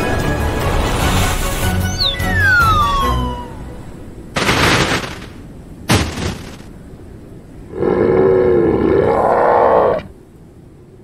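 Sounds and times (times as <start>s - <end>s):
falling whistle: 1.8s - 3.8s
crashing impacts: 4.3s - 6.8s
voice roaring: 7.7s - 10.1s.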